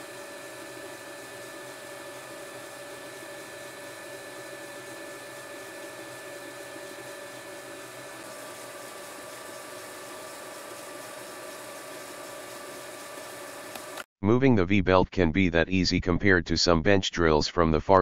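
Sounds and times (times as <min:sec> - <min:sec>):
lathe running: 0:00.0 - 0:14.1.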